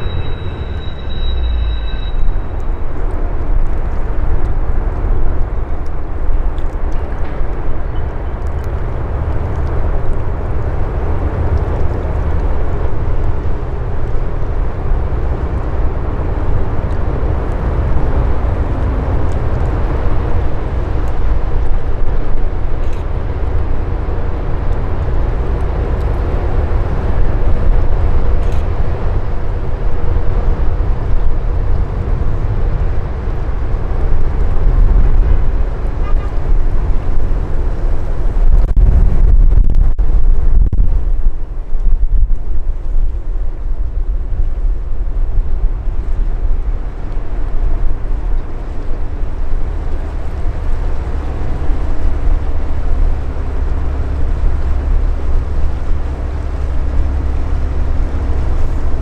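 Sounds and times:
ship engines rumbling: 0.0s - 39.3s
wind buffeting microphone: 0.0s - 59.0s.

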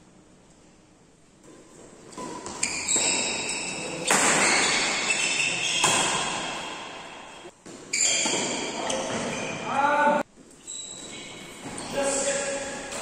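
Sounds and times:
racket striking shuttlecock: 2.2s - 5.0s.

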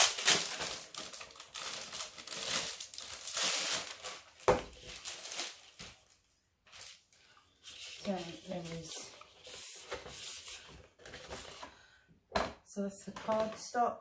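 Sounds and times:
plastic wrapper crinkling: 0.0s - 7.0s.

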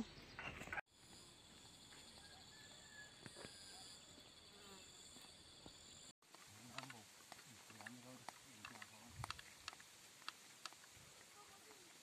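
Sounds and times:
insects buzzing: 0.9s - 12.0s
faint ticks: 6.3s - 12.0s.

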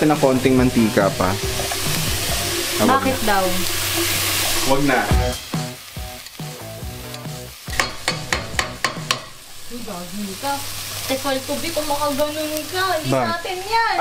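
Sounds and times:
chicken feet frying: 0.0s - 14.0s
metal ladle clacking on pot: 7.7s - 9.4s.

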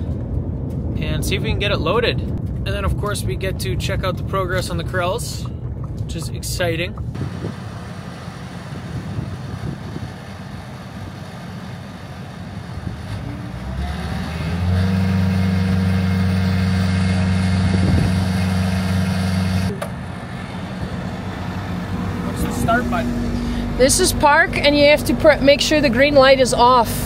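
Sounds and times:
diesel engine revving: 7.0s - 27.0s.

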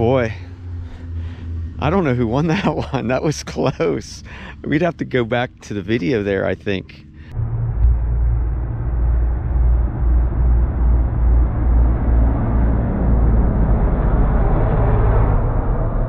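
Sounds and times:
racing vehicle engines: 0.0s - 16.0s.

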